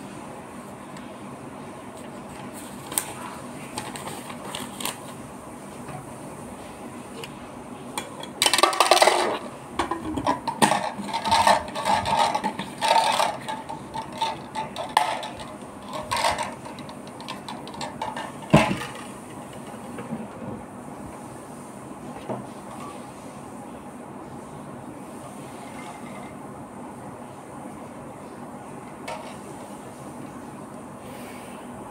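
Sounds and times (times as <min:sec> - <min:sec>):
plastic shaker scraping and knocking: 0:02.5 - 0:05.0, 0:08.4 - 0:20.2.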